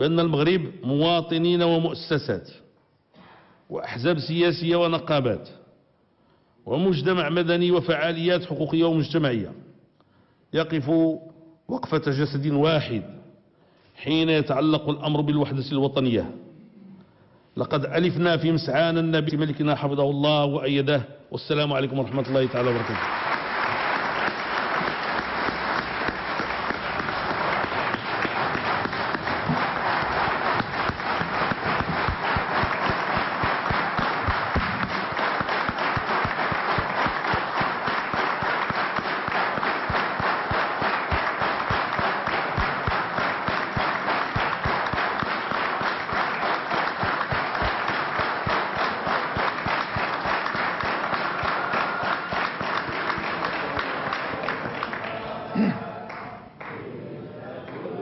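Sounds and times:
crowd applauding: 22.1s - 56.8s.

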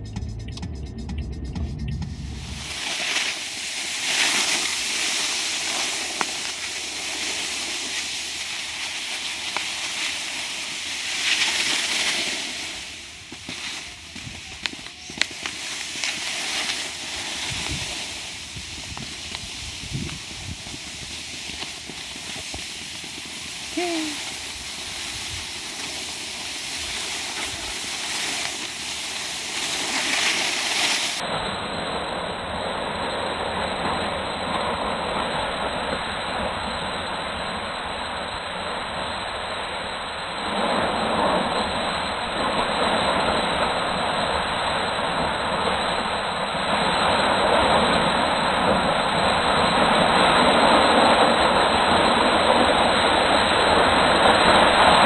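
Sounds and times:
wind on microphone: 1.6s - 31.2s
skis sliding over snow: 2.2s - 31.3s, 33.0s - 55.0s.

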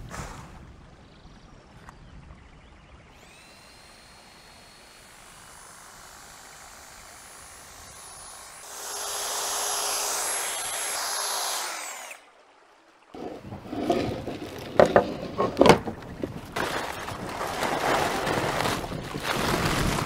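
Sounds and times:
electric hedge trimmer: 3.1s - 12.3s
hedge trimmer cutting shrub: 3.2s - 12.3s.

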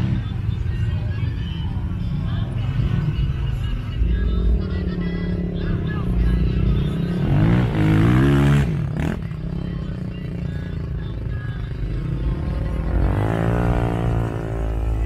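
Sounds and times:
atv engine revving: 4.2s - 10.8s, 11.8s - 15.0s.

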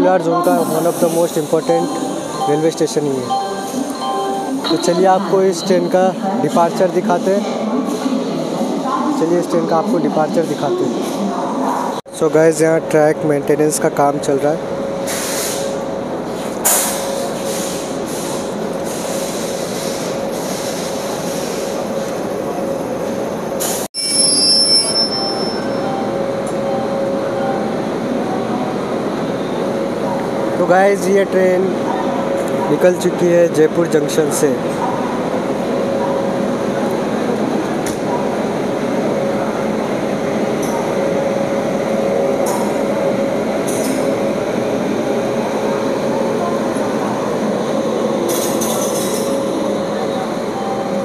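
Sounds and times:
electric locomotive hum and rumble: 0.0s - 51.0s
high wheel squeal: 24.0s - 26.1s.

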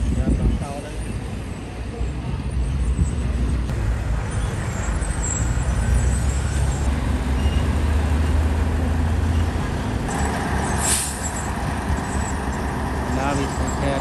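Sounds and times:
diesel engine running: 3.7s - 14.0s
short hiss: 10.8s - 11.3s.

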